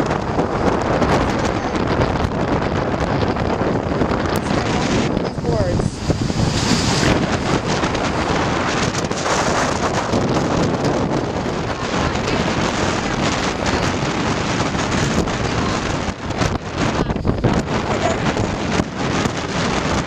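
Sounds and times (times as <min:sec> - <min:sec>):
surf breaking: 0:00.0 - 0:20.0
wind buffeting microphone: 0:00.0 - 0:20.0.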